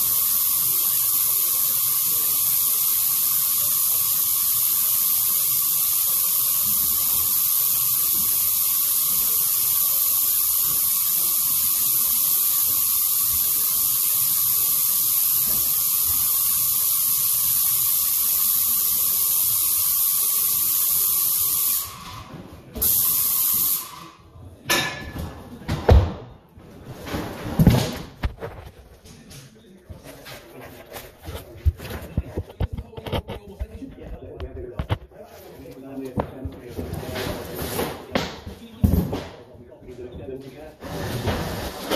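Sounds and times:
paint spray gun hissing: 0:00.0 - 0:22.0, 0:22.8 - 0:24.0.

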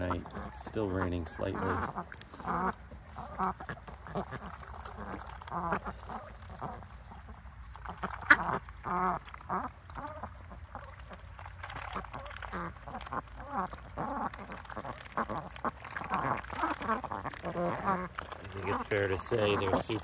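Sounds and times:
ducks quacking: 0:00.0 - 0:20.0.

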